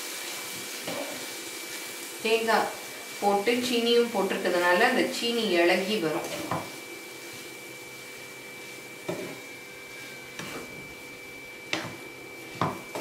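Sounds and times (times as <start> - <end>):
wooden spatula scraping a pan: 6.0 - 11.0, 11.6 - 13.0.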